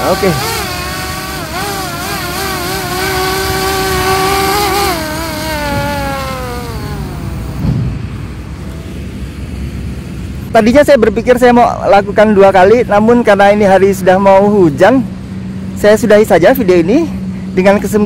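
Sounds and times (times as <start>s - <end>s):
drone motors whining: 0.0s - 8.9s
thump: 7.6s - 8.0s.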